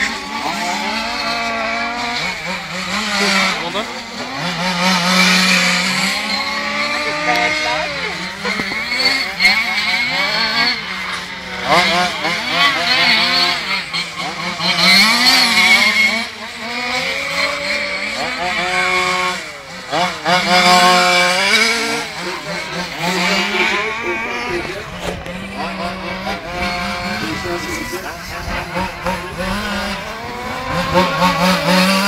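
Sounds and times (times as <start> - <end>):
model car motors whining: 0.0 - 32.0.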